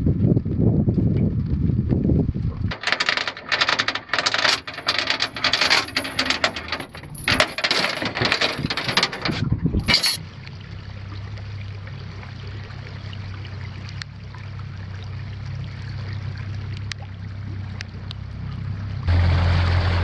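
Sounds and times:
anchor chain clinking and rattling: 2.7 - 10.2.

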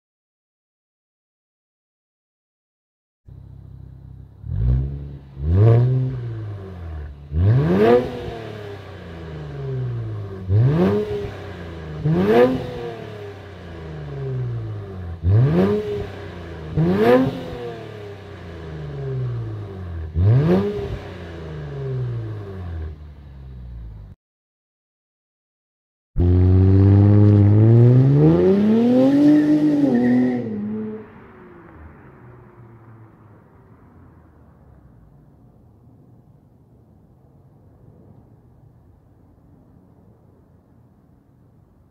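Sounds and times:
car engine revving: 3.3 - 24.1, 26.2 - 35.2.

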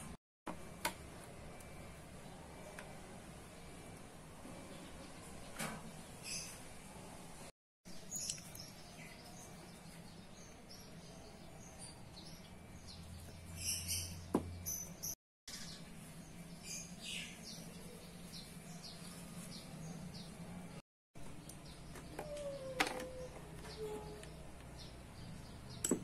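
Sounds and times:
small birds chirping: 4.5 - 6.7, 7.9 - 26.0.

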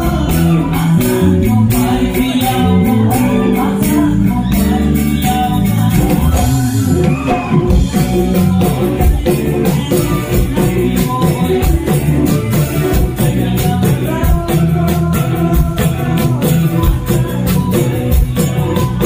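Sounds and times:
live band music: 0.0 - 19.0
person singing: 0.0 - 19.0.

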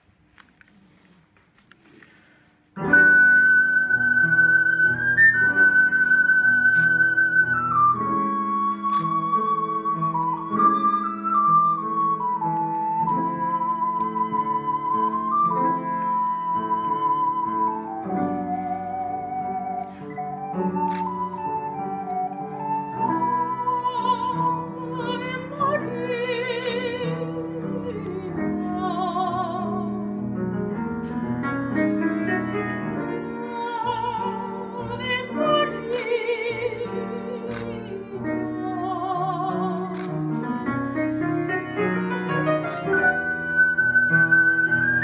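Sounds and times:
piano accompaniment: 2.7 - 45.0
soprano singing with vibrato: 23.2 - 30.0, 32.3 - 40.0.

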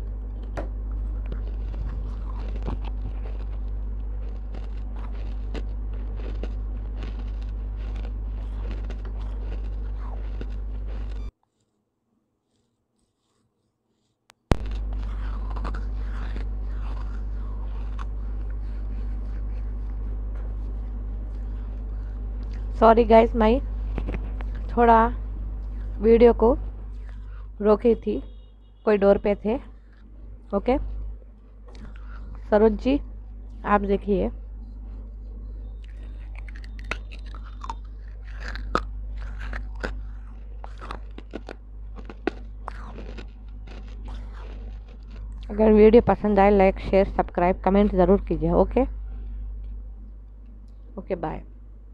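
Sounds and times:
clay pot crunching between teeth: 0.0 - 11.8, 12.4 - 26.2, 26.8 - 27.6, 29.6 - 33.9, 34.8 - 47.6
low electrical hum: 0.0 - 51.9
microphone handling noises: 23.7 - 24.8.

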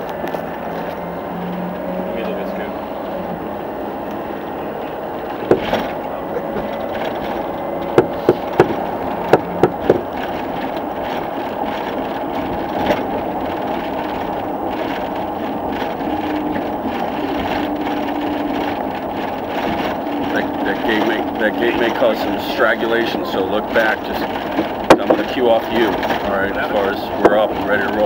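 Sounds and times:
vehicle road and engine rumble: 0.0 - 28.0
sharp knocks: 5.3 - 15.9, 23.8 - 26.3.

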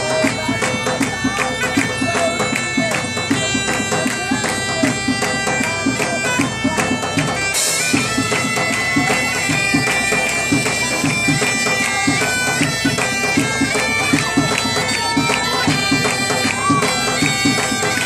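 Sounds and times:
bagpipe drones: 0.0 - 18.0
bagpipes playing dance tune: 0.0 - 18.0
steady low drum beat: 0.0 - 18.0.

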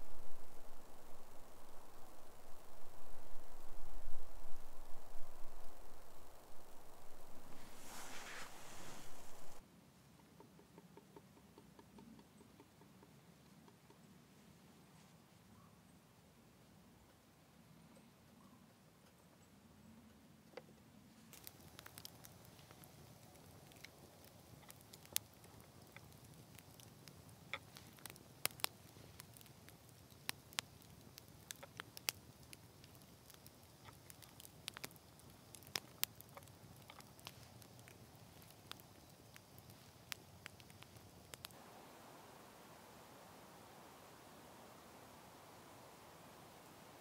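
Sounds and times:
campfire crackling and popping: 0.0 - 9.6, 21.3 - 47.0.

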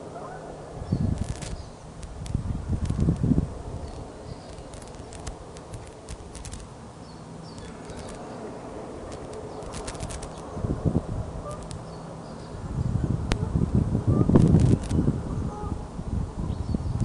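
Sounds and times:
distant small birds chirping: 0.0 - 13.0
wind rumbling on microphone: 0.0 - 17.0
sharp ticks: 1.1 - 6.7, 7.5 - 8.3, 9.1 - 10.5.

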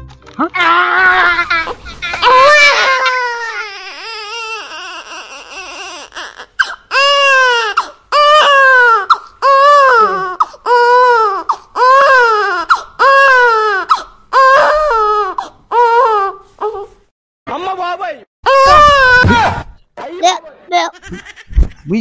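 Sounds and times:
person crying and wailing: 0.4 - 6.3, 8.2 - 15.3, 18.5 - 19.6.

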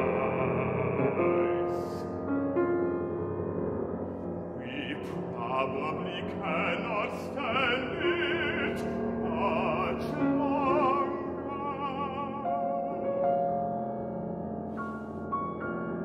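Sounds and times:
baritone singing with vibrato: 0.0 - 2.2, 4.6 - 13.5
grand piano: 0.0 - 16.0.

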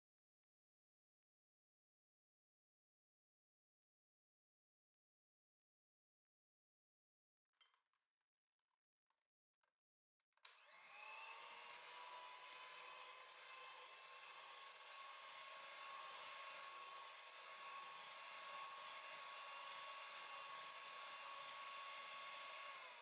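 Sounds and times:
electric hand mixer whine: 10.4 - 23.0.

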